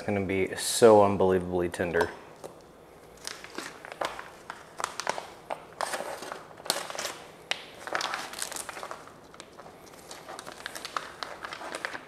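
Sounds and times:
plastic packaging crinkling: 2.4s - 12.0s.

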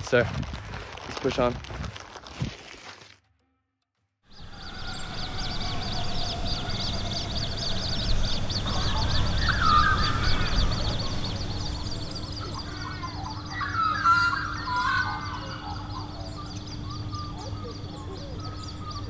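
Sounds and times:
low rumble: 4.3s - 13.3s
bird warbling: 4.3s - 19.0s
birds chirping: 4.3s - 19.0s.

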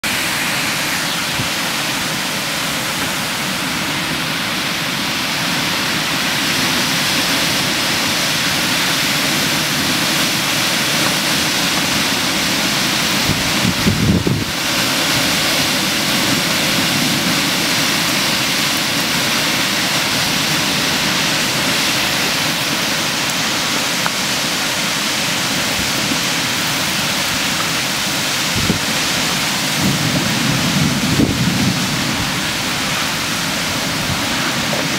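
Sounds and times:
heavy rain pouring: 0.0s - 34.9s
storm wind: 0.0s - 34.9s
low thunder rumble: 28.5s - 34.9s.

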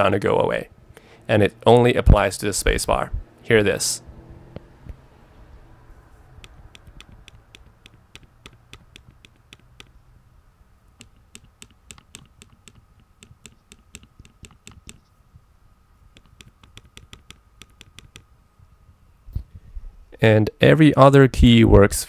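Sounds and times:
keyboard space bar clicking: 6.4s - 9.9s.

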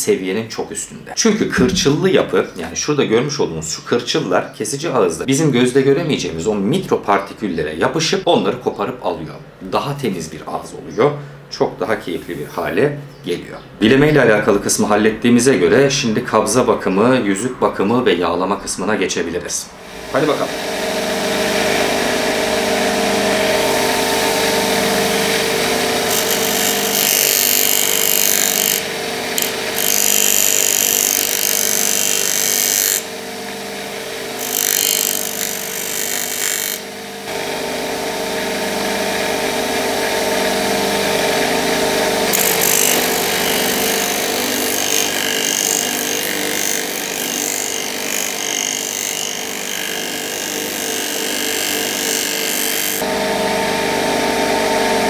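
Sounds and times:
bench grinder motor hum: 19.8s - 55.0s
metal grinding hiss: 26.0s - 33.0s.

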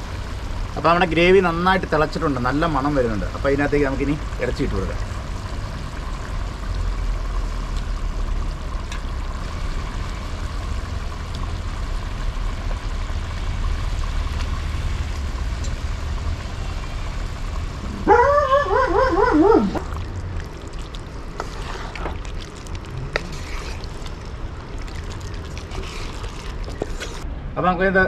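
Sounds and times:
animal call with wavering pitch: 17.8s - 19.9s.

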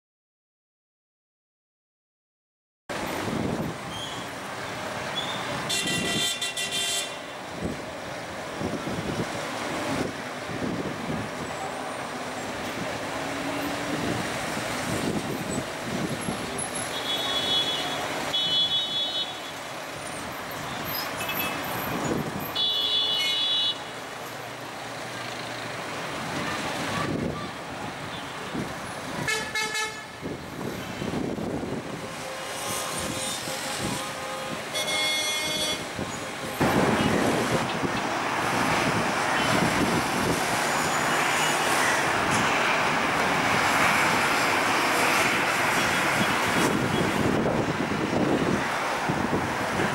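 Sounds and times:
traffic din: 2.9s - 49.9s
car horns tooting: 5.2s - 7.4s, 16.7s - 19.6s, 20.7s - 23.9s, 29.2s - 30.2s, 32.0s - 37.9s.

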